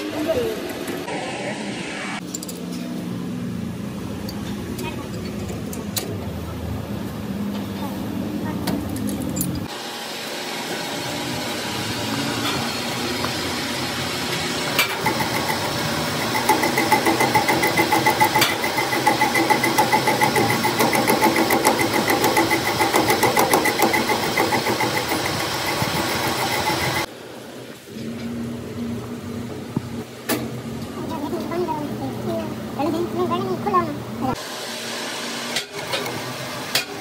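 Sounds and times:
metal lathe cutting: 9.7 - 27.1.

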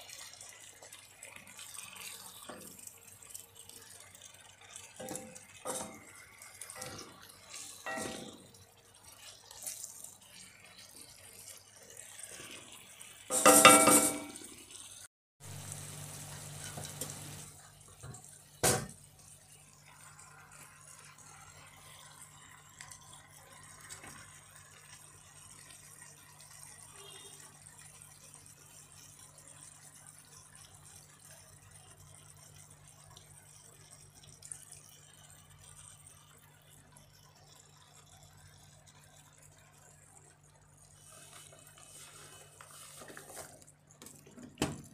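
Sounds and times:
wooden spoon scraping a pan: 5.0 - 14.4, 41.0 - 43.6.

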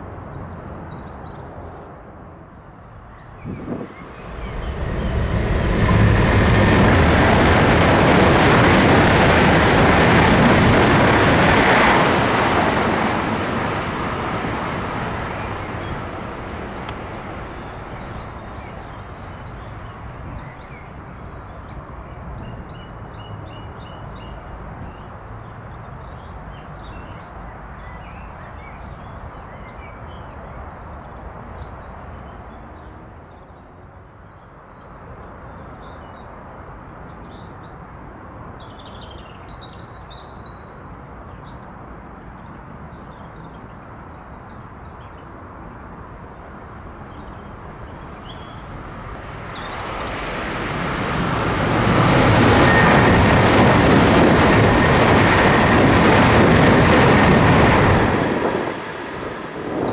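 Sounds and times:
steady rushing noise: 1.8 - 18.7, 48.1 - 59.9
small birds singing and chirping: 59.0 - 59.9.

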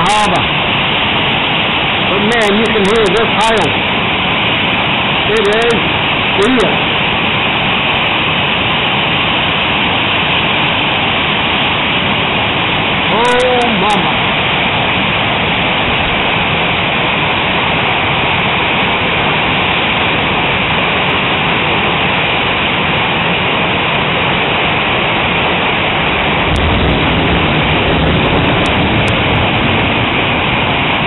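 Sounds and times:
hail and rain pelting down: 0.0 - 31.0
low rumble: 24.8 - 31.0.

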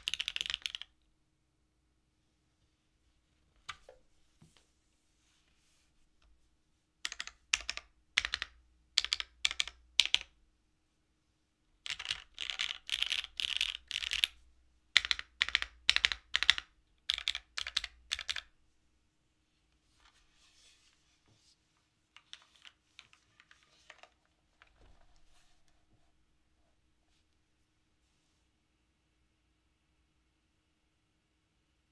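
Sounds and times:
mechanical keyboard typing: 0.0 - 0.9, 7.0 - 10.4, 11.8 - 14.4, 15.0 - 18.5
faint handling noise: 19.5 - 28.5.

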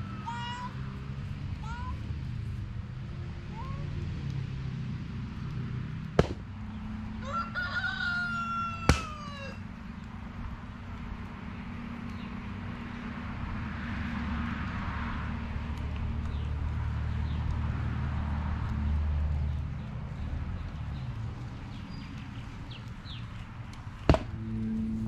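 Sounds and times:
rooster crowing: 7.1 - 9.7
steady low rumble: 15.4 - 25.0.

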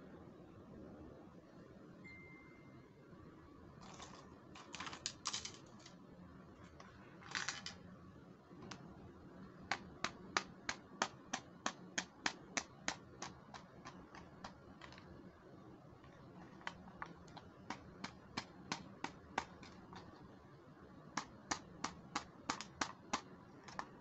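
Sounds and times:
plastic case clicking and rattling: 9.7 - 15.1, 16.0 - 20.2, 21.2 - 24.0.

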